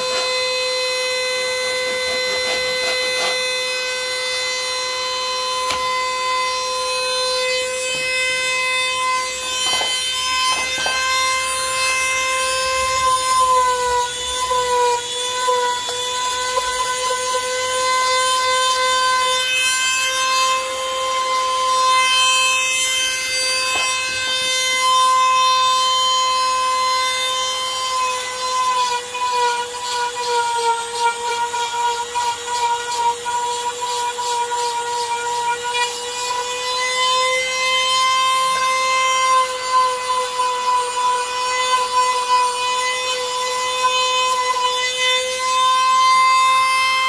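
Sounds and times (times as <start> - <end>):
power tool whining: 0.0 - 47.0.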